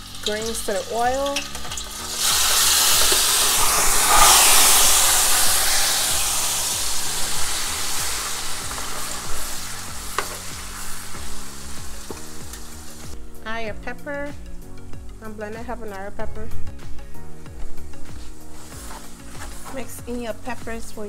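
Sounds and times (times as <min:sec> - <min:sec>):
greens sizzling in hot oil: 0:00.0 - 0:13.2, 0:17.6 - 0:21.0.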